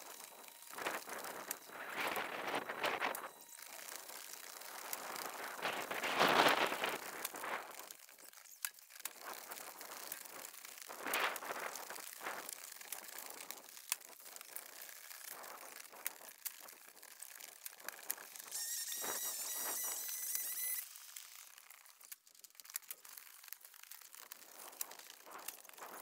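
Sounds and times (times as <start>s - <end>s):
shingles scraping and tearing: 0.0s - 26.0s
high wavering squeal: 18.5s - 20.8s.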